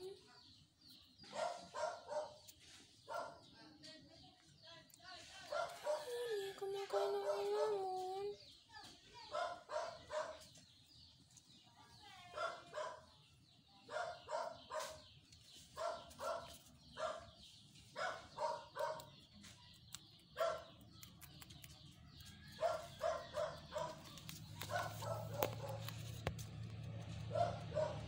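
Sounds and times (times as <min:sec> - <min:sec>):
dog barking: 0:01.2 - 0:03.6, 0:05.5 - 0:06.2, 0:06.9 - 0:07.8, 0:09.2 - 0:10.7, 0:12.3 - 0:21.1, 0:22.2 - 0:26.0, 0:27.2 - 0:28.0.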